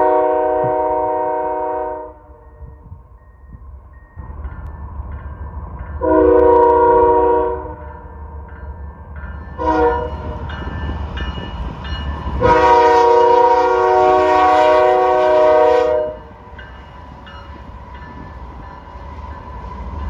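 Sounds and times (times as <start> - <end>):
train air horn blasts: 0.0 - 2.4, 6.0 - 7.9, 9.6 - 10.4, 12.4 - 16.3
diesel locomotives rumbling: 0.0 - 20.0.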